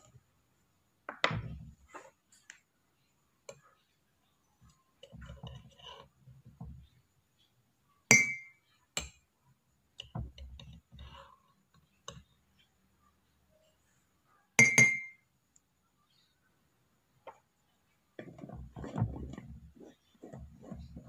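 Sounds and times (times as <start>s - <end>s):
metal clinking on glass: 8.1s - 8.5s, 14.6s - 15.2s
spoon scraping inside glass jar: 18.2s - 21.0s.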